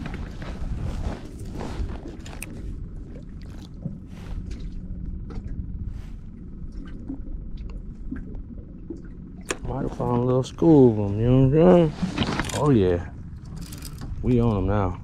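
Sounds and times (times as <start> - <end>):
wind rumbling on microphone: 0.0 - 10.0
waves lapping against boat hull: 0.0 - 15.0.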